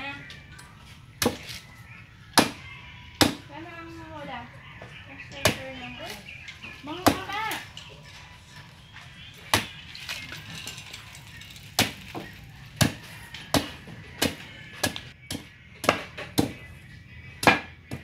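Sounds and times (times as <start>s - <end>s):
machete chopping coconut husk: 1.2s - 1.5s, 3.2s - 3.4s, 11.8s - 16.6s, 17.4s - 18.0s.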